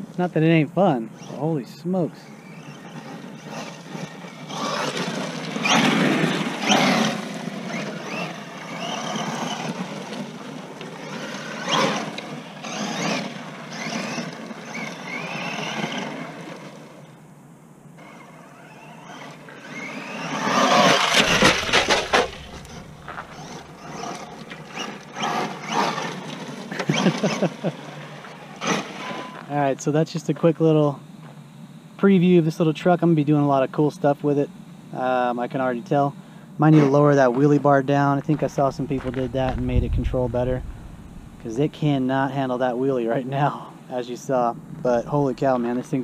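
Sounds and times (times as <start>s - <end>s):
tyres churning loose dirt: 0.0s - 16.9s, 18.0s - 29.5s, 36.8s - 46.0s
rc truck motor whine: 1.0s - 30.1s, 38.0s - 42.6s.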